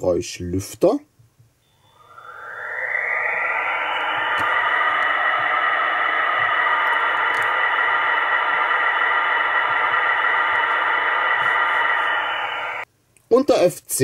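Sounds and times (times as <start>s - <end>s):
faint hum: 1.6s - 12.9s
rushing fan noise from small speaker: 1.8s - 12.8s.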